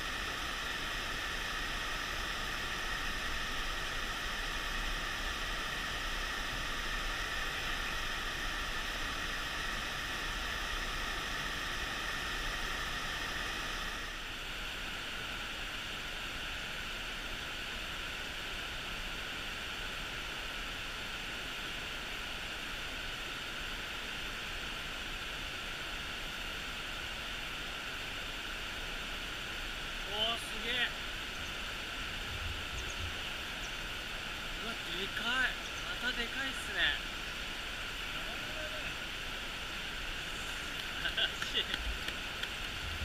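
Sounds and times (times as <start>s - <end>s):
mountain stream rushing: 25.3s - 43.0s.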